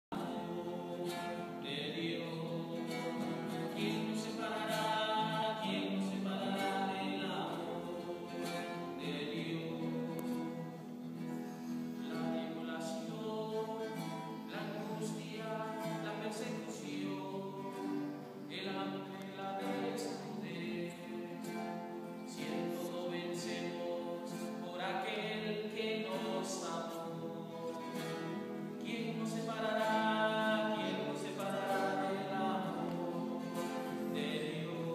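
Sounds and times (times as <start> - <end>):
choir singing sustained notes: 0.1 - 34.9.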